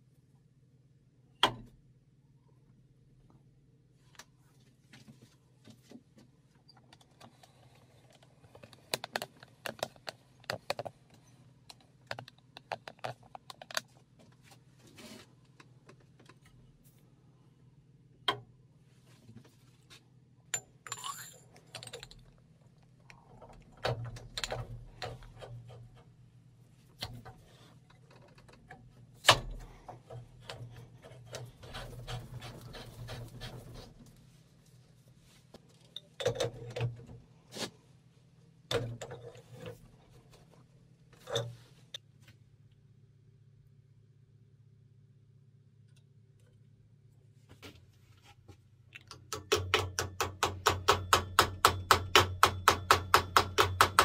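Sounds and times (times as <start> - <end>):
metal parts clicking and clinking: 20.5 - 22.4.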